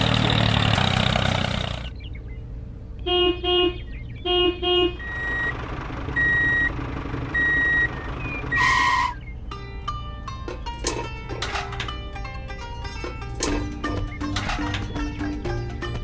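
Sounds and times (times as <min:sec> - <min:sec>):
truck engine running: 0:00.0 - 0:02.9, 0:03.8 - 0:16.0
vehicle horn honks: 0:03.0 - 0:05.5, 0:08.5 - 0:09.2
reversing alarm beeping: 0:05.0 - 0:05.6, 0:06.2 - 0:09.2.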